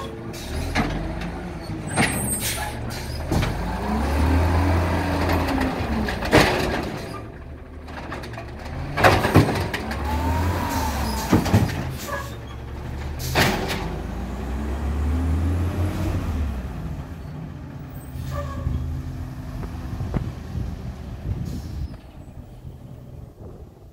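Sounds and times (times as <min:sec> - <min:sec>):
truck engine revving: 0:00.0 - 0:23.7
cart knocking down: 0:08.9 - 0:09.9, 0:11.1 - 0:12.3
air brakes hissing: 0:21.4 - 0:22.2.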